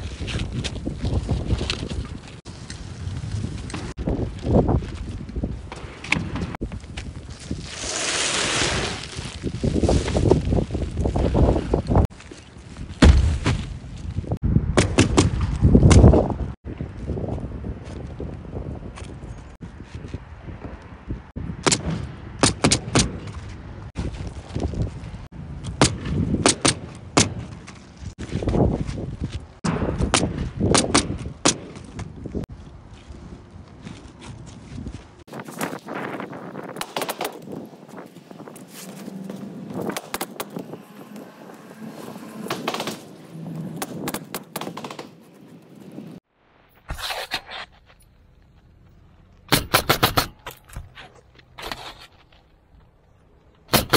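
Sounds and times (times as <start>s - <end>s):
shingles scraping and rustling: 6.8s - 13.8s, 49.6s - 53.1s
pneumatic nailer firing: 49.5s - 50.8s, 53.7s - 53.9s.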